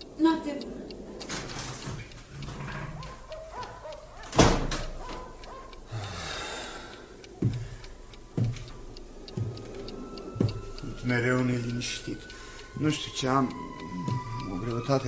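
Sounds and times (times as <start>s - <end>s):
clock ticking: 0.0s - 15.0s
door shutting with heavy thud: 4.2s - 5.0s.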